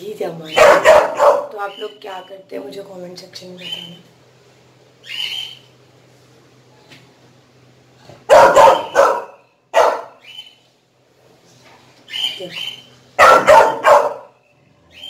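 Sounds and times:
puppy barking: 0:00.5 - 0:01.6, 0:08.3 - 0:10.2, 0:13.2 - 0:14.4.

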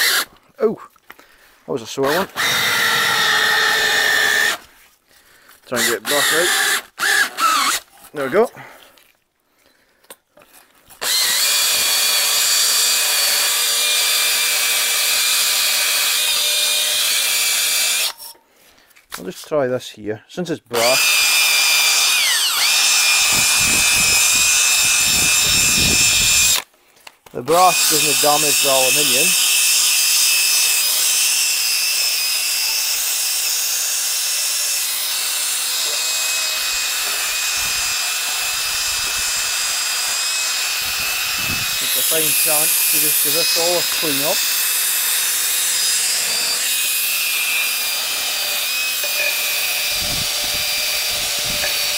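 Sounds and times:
drill wire brush scrubbing metal: 0:05.7 - 0:08.2, 0:27.5 - 0:51.9.

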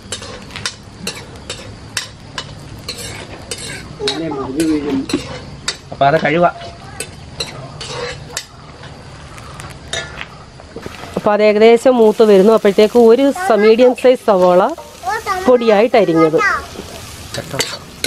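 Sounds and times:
spoon scraping a pan: 0:00.0 - 0:05.9, 0:06.5 - 0:09.0, 0:16.8 - 0:18.0
food sizzling in hot oil: 0:00.0 - 0:10.0, 0:10.8 - 0:18.0.

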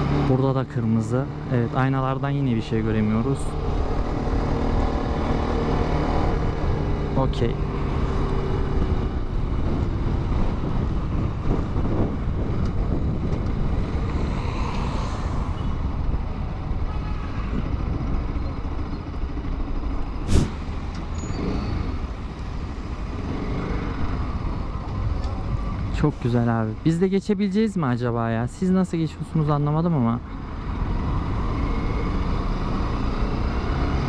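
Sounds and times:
road noise: 0:00.0 - 0:34.0
motorcycle engine: 0:02.7 - 0:14.4
wind noise: 0:07.9 - 0:26.3
brief hiss: 0:20.2 - 0:20.6.

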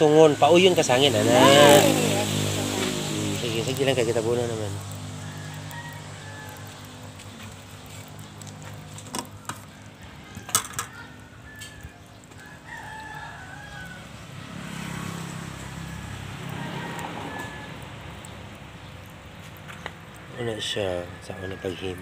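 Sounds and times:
rooster crowing: 0:04.1 - 0:07.2, 0:09.3 - 0:18.2, 0:20.6 - 0:22.0.

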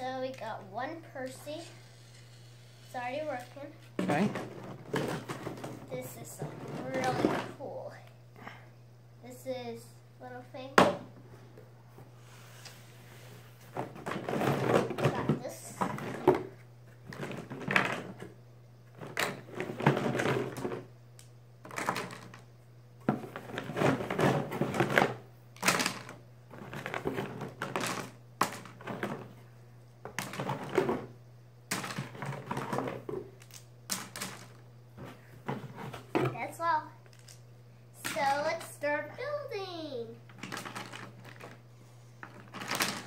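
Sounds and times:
steady low hum: 0:00.0 - 0:43.0
plastic track pieces clattering: 0:23.4 - 0:29.2, 0:31.7 - 0:34.6, 0:37.1 - 0:37.4, 0:40.3 - 0:41.6, 0:42.2 - 0:43.0.

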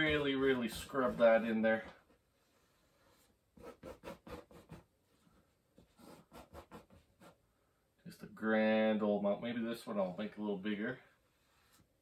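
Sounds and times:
brush scrubbing on canvas: 0:00.0 - 0:01.8.

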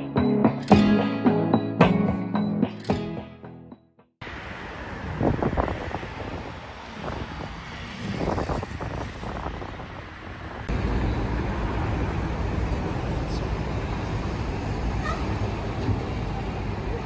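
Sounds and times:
street traffic noise: 0:04.2 - 0:17.0
wind on microphone: 0:04.9 - 0:10.7.

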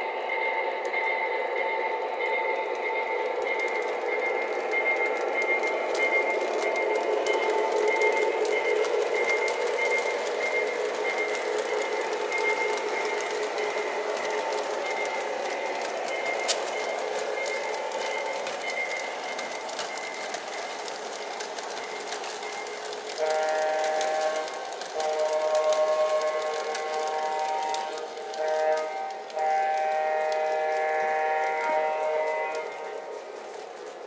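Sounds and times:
model train whirring rumble: 0:00.0 - 0:34.0
train horn chord blasts: 0:23.2 - 0:33.0.

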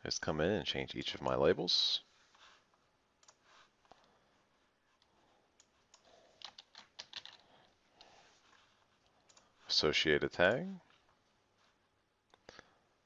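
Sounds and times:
keyboard and mouse clicks: 0:03.2 - 0:03.4, 0:05.6 - 0:07.4.

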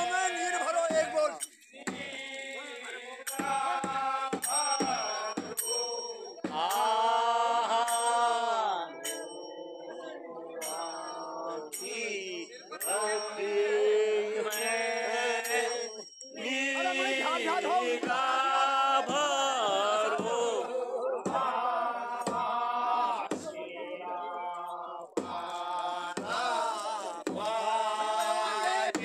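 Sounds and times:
men singing in chorus: 0:00.0 - 0:29.0
cymbals ringing: 0:04.4 - 0:07.2, 0:09.0 - 0:13.8
drum strokes: 0:25.2 - 0:29.0.

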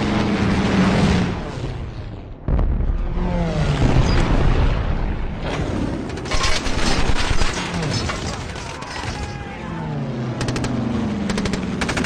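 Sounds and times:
men shouting: 0:08.6 - 0:10.0.

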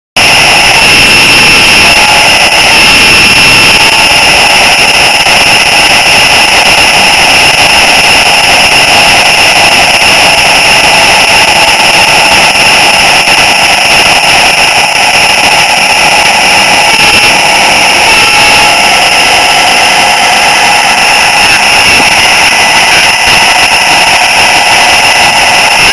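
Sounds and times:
model train motor whining: 0:00.2 - 0:25.9.

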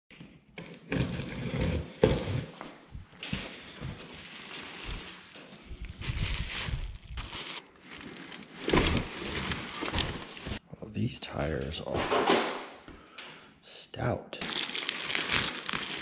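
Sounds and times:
plastic and bubble wrap rustling: 0:00.9 - 0:10.6, 0:14.4 - 0:16.0
cardboard flaps pulled open: 0:08.6 - 0:10.6.

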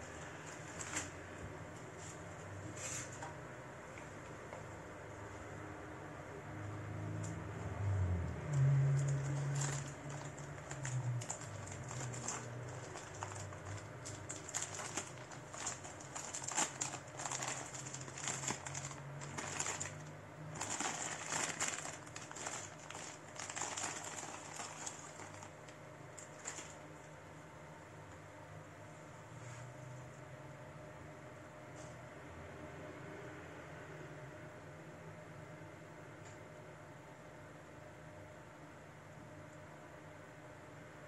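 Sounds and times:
plastic packaging crinkling: 0:08.9 - 0:26.9.

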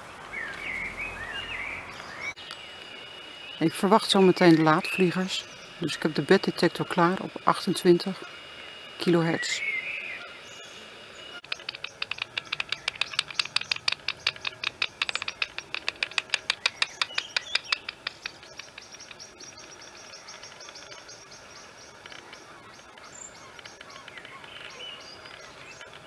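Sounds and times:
bat detector clicks: 0:11.4 - 0:26.0.

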